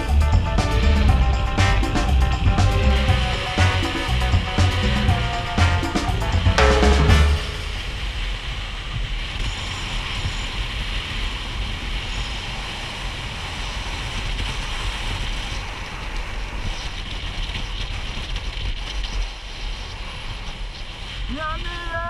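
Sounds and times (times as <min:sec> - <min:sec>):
wind rush on microphone: 0:07.4 - 0:22.0
longboard wheels rolling on asphalt: 0:07.9 - 0:21.3.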